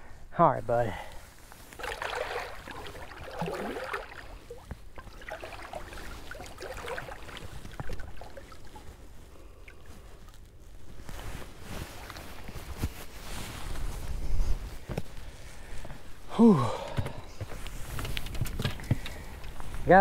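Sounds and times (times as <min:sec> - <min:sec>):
water lapping against boat: 0:01.6 - 0:10.4
water splashing: 0:01.7 - 0:10.1.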